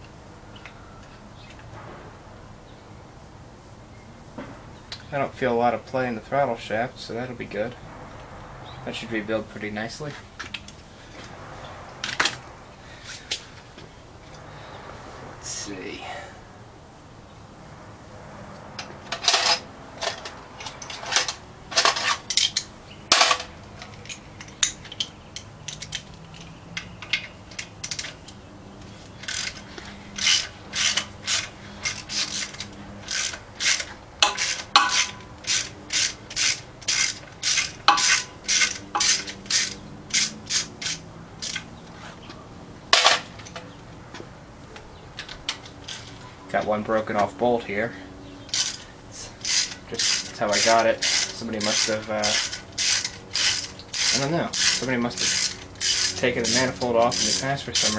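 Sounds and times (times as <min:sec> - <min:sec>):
ratchet wrench clicking: 0:19.1 - 0:28.4, 0:29.1 - 0:41.7, 0:45.2 - 0:46.2, 0:48.4 - 0:57.9
sharp metal knocks: 0:33.6 - 0:41.0, 0:42.9 - 0:43.7.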